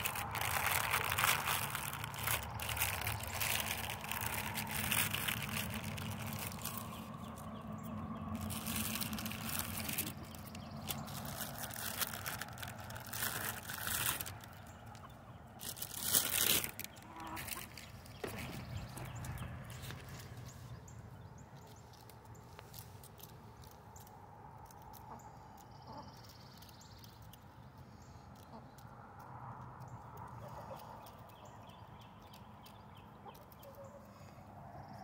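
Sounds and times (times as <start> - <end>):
crackling and rustling: 0.0 - 31.3
chickens clucking: 16.9 - 19.6, 24.9 - 26.2, 33.2 - 34.1.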